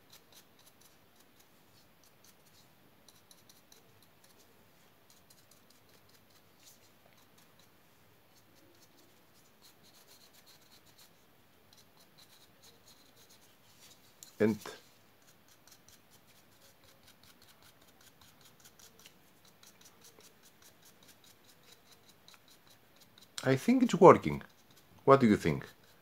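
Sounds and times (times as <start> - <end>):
brush bristles scratching: 0.0 - 26.0.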